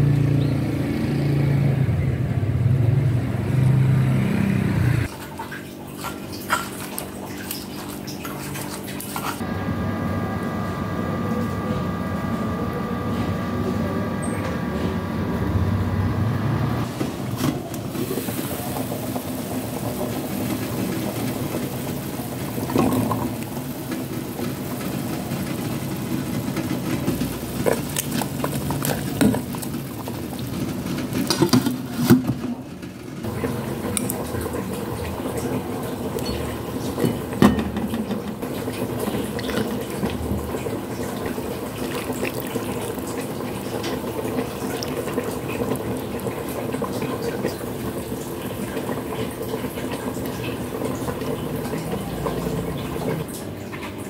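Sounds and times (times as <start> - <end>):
low background hum: 5.0 - 54.0
soup sloshing and pouring: 16.9 - 32.2, 33.3 - 53.2
ladle knocking against pot: 37.0 - 38.4.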